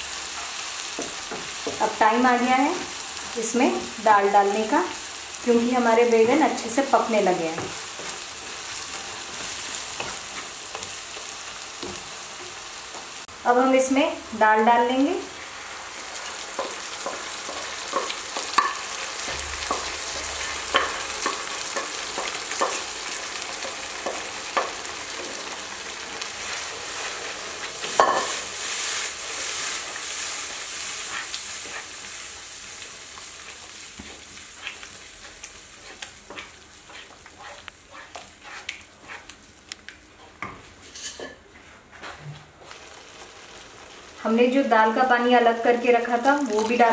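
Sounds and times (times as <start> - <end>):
food sizzling in a pan: 0.0 - 41.4, 42.4 - 46.9
spatula knocking and scraping pan: 0.9 - 2.0, 16.5 - 25.4, 27.8 - 28.4, 34.0 - 39.3.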